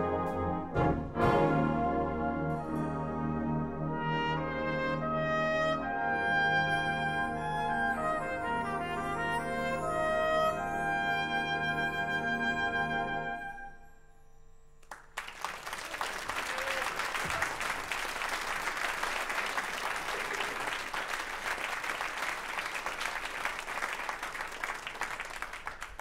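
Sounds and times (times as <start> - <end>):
audience applauding: 14.8 - 26.0.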